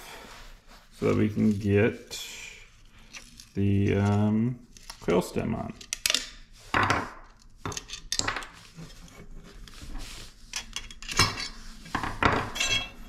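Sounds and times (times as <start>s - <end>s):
metal clinks of hand tool: 12.6s - 13.0s.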